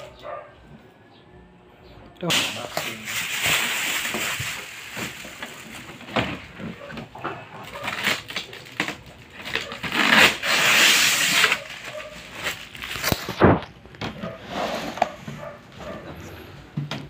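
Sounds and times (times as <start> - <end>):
plastic and cardboard rustling: 2.3 - 17.0.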